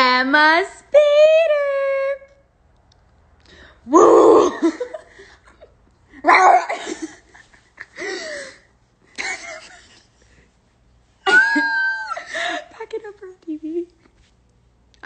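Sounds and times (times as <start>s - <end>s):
girls laughing: 4.3s - 10.2s, 11.2s - 12.6s.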